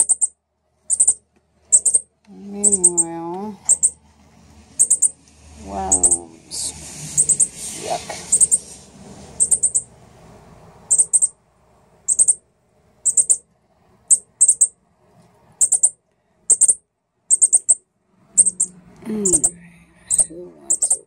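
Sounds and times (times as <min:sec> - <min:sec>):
fledgling bird begging chips: 0:00.0 - 0:00.3, 0:00.9 - 0:04.0, 0:04.8 - 0:05.2, 0:05.8 - 0:06.4, 0:07.1 - 0:08.7, 0:09.4 - 0:09.9, 0:10.9 - 0:11.3, 0:12.0 - 0:12.4, 0:13.0 - 0:13.4, 0:14.0 - 0:14.7, 0:15.6 - 0:17.8, 0:18.4 - 0:21.0.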